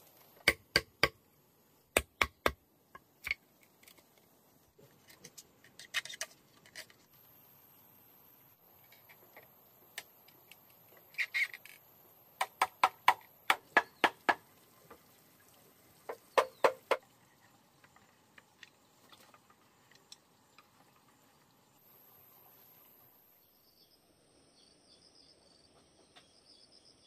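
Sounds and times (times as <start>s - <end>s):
mallet knocking on bamboo frame: 16.4s - 17.0s.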